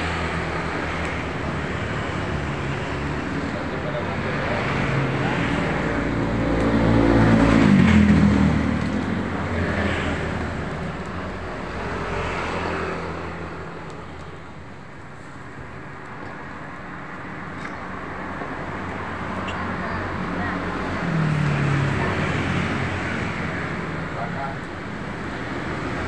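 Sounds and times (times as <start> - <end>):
vehicle passing close by: 4.2 - 10.6.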